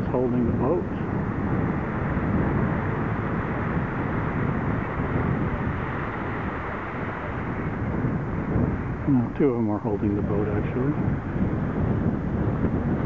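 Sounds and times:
small waves washing: 0:00.0 - 0:09.6
wind on microphone: 0:00.0 - 0:13.0.

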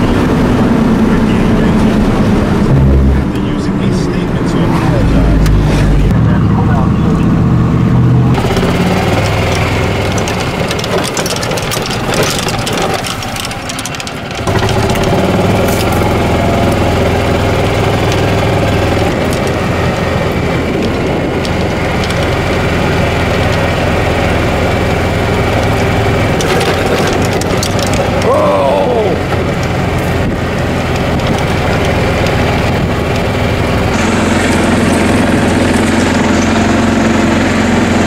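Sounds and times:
golf cart engine running: 0:00.0 - 0:38.0
cart rattling: 0:08.3 - 0:37.2.

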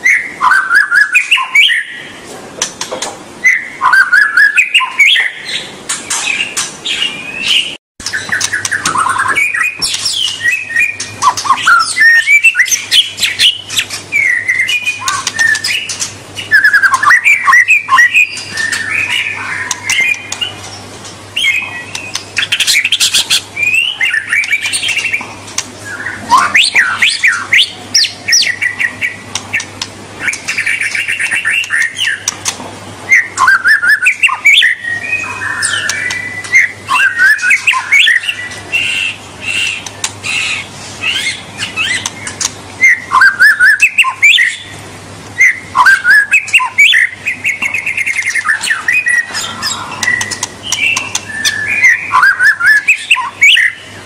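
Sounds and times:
bird singing whistled phrases: 0:00.0 - 0:02.1, 0:03.4 - 0:05.6, 0:06.3 - 0:20.6, 0:21.4 - 0:25.2, 0:25.8 - 0:32.3, 0:33.1 - 0:44.7, 0:45.4 - 0:53.9
bird chattering: 0:03.5 - 0:44.8, 0:45.4 - 0:53.9.

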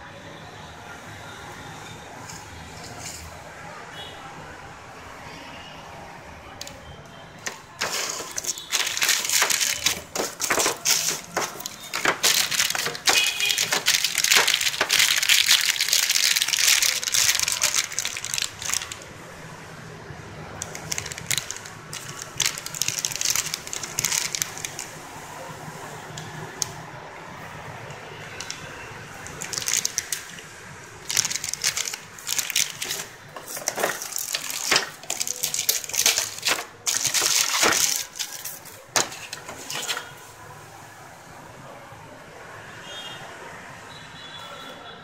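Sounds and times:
plastic bags crinkling: 0:07.4 - 0:19.1, 0:20.6 - 0:25.0, 0:28.3 - 0:40.2.

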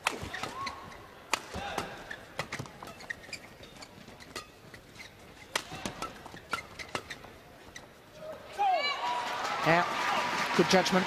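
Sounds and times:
rackets hitting shuttlecock: 0:00.0 - 0:07.3
shoes squeaking on court: 0:00.0 - 0:08.2.

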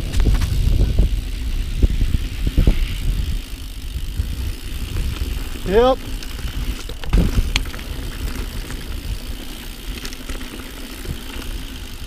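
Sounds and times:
bike tyres on gravel trail: 0:00.0 - 0:12.0
bike clunks: 0:05.0 - 0:09.0.

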